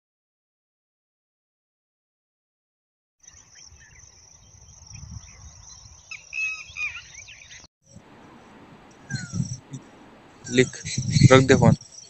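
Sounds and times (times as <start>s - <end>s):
short bird chirps: 3.2s - 7.7s, 9.0s - 9.9s
insects chirring: 3.2s - 12.0s.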